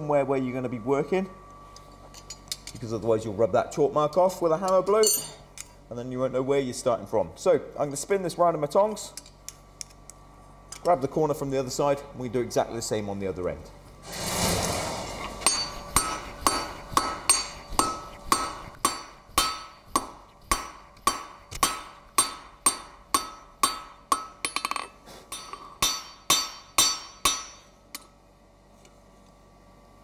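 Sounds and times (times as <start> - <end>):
hammer striking steel on anvil: 15.4 - 28.1.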